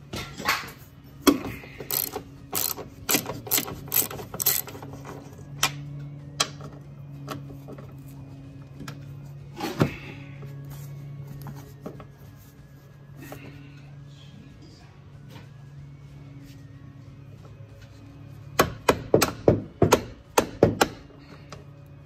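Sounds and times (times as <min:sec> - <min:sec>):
socket ratchet clicking: 0:01.9 - 0:04.8.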